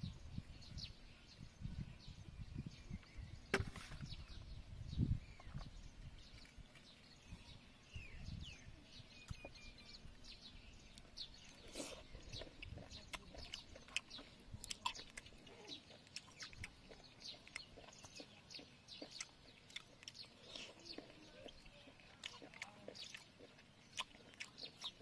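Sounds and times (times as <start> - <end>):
birds chirping: 0.0 - 25.0
faint chewing: 9.2 - 25.0.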